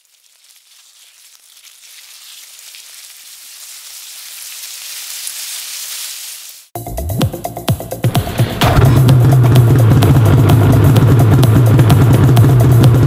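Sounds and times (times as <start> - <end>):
crackling hiss: 0.0 - 6.8.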